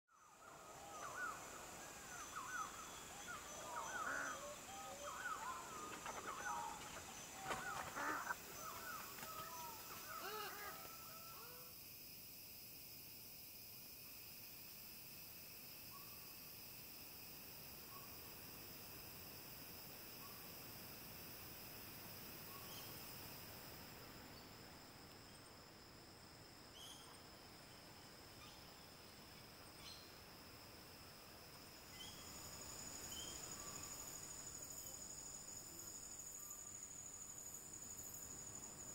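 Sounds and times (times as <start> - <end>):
faint chirps: 0.1 - 11.7
high insect drone: 0.1 - 38.9
birds calling: 0.6 - 11.6.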